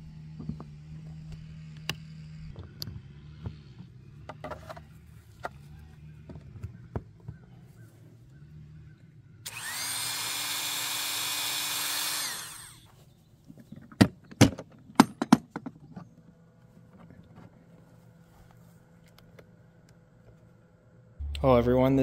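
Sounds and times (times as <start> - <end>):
rotary tool cutting plastic: 9.5 - 12.9.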